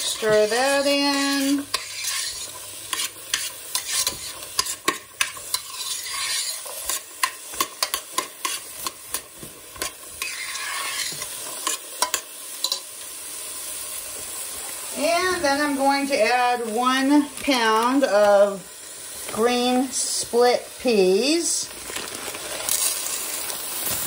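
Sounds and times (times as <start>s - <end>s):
metal spoon scraping a pot: 0.0s - 9.0s, 9.8s - 12.8s
vegetables sizzling: 0.0s - 24.0s.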